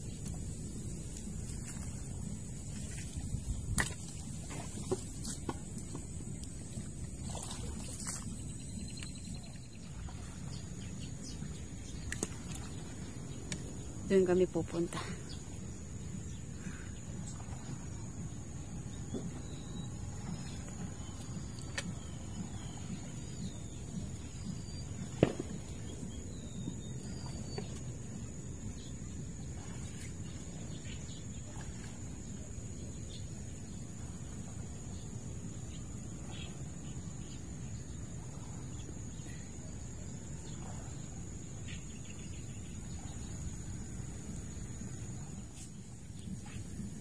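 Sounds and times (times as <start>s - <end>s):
constant low rumble: 0.0s - 47.0s
bird chirps: 8.0s - 13.8s.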